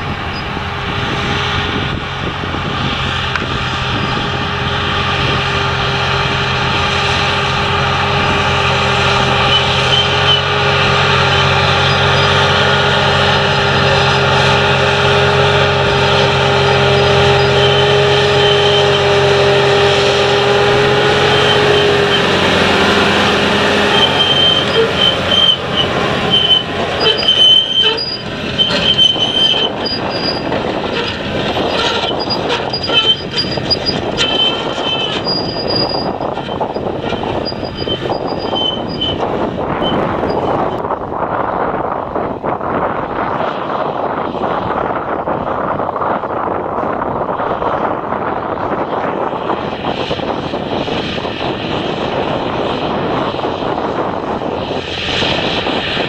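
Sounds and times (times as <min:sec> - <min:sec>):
steel rollers rattling and squeaking: 0:00.0 - 0:00.8, 0:04.0 - 0:40.9
tracks squealing: 0:00.0 - 0:40.9
tractor diesel engine under load: 0:00.0 - 0:56.0.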